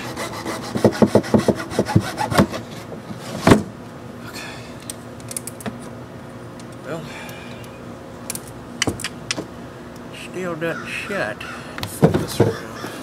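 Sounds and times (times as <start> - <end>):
hacksaw cutting: 0.0 - 2.6.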